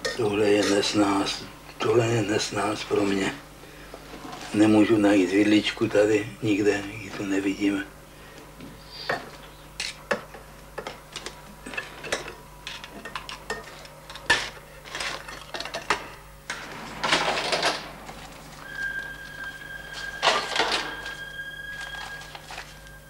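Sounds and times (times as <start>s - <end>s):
steady high tone: 16.5s - 23.0s.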